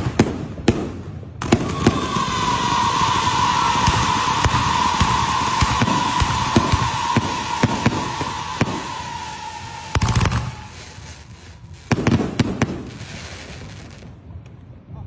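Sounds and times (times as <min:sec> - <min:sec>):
firework pops and bangs: 0:00.0 - 0:14.6
firework whistle falling in pitch: 0:01.4 - 0:11.2.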